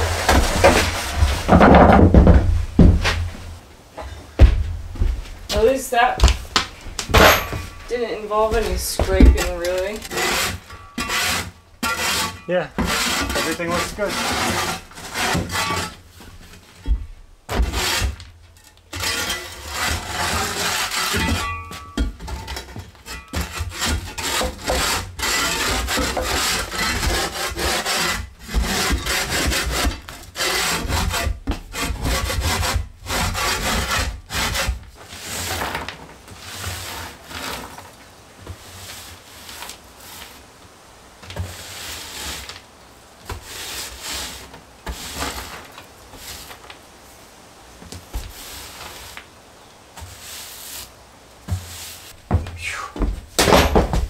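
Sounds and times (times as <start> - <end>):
floor scraper scraping plywood: 0.0 - 3.3, 8.4 - 18.3, 18.9 - 40.4, 41.4 - 42.6, 43.2 - 46.7
broom sweeping floor: 30.6 - 40.5, 41.2 - 46.8, 47.8 - 53.2.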